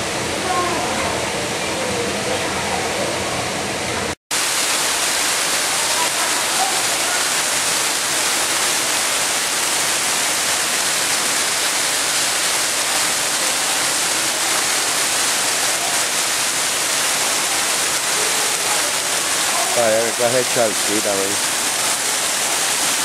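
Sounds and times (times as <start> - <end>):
waterfall rushing: 4.3 - 23.0.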